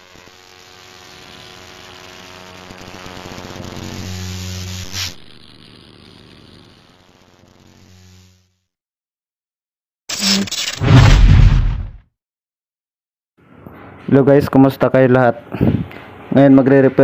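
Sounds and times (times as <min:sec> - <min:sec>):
sudden hit: 0:10.2 - 0:12.0.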